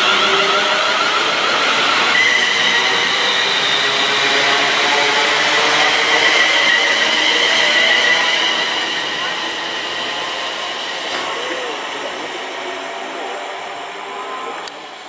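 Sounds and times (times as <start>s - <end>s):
electric train whine: 0.0s - 15.0s.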